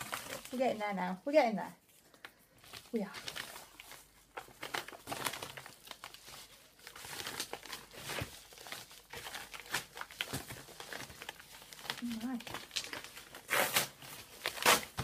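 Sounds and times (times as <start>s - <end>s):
paper and plastic rustling: 0.0s - 15.0s
paper tearing: 11.8s - 15.0s.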